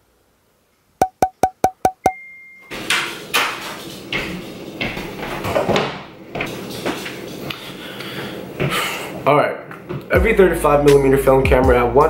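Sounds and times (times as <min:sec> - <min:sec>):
higher steady tone: 0:01.0 - 0:02.7
short electronic beeps: 0:01.0 - 0:02.7.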